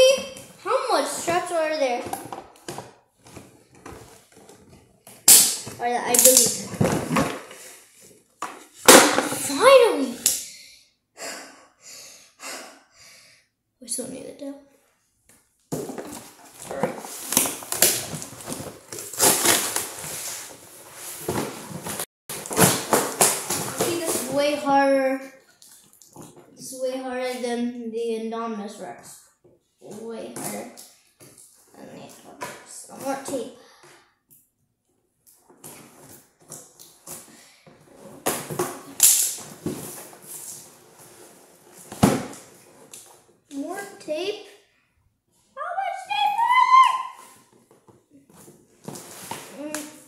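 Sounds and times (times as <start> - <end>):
packaging rustling and tearing: 16.2 - 24.3.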